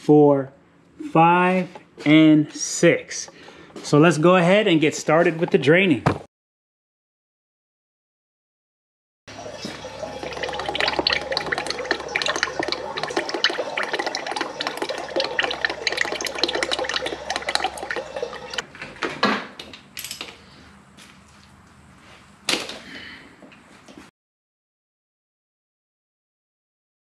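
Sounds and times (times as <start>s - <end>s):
oil pouring and splashing: 9.3s - 18.6s.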